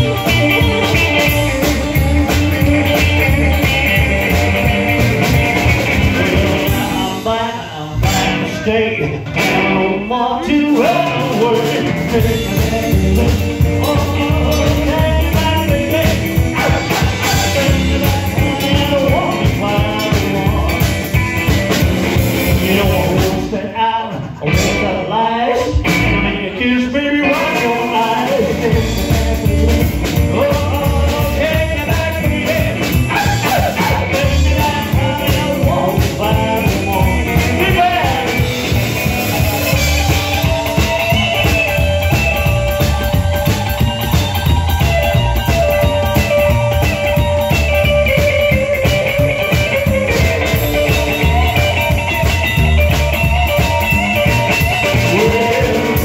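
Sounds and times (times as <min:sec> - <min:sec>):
drums: 0:00.0 - 0:56.0
electric guitar: 0:00.0 - 0:56.0
upright bass: 0:00.0 - 0:56.0.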